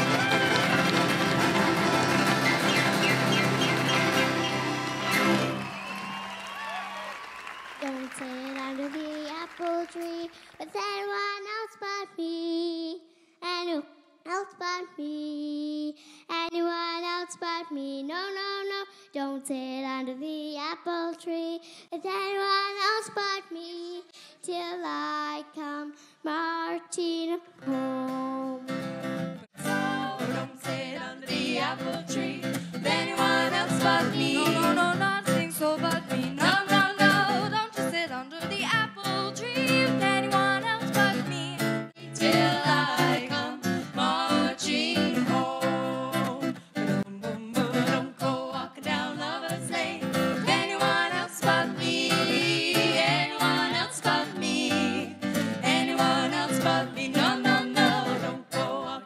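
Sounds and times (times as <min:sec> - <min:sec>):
acoustic guitar and band: 0:00.0 - 0:10.8, 0:27.6 - 0:59.0
girl singing: 0:07.8 - 0:28.7, 0:29.6 - 0:59.0
older girl singing: 0:07.8 - 0:28.7, 0:29.6 - 0:59.0.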